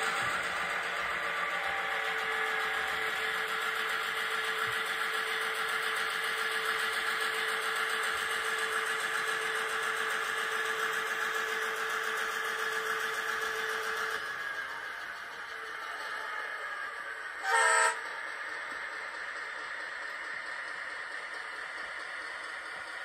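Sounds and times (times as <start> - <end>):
model locomotive diesel engine drone: 0.0 - 23.0.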